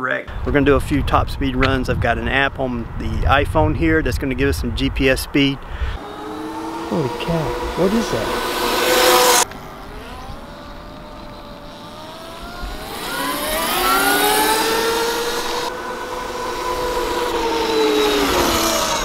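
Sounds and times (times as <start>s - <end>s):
electric motorcycle motor whining: 6.0s - 19.0s.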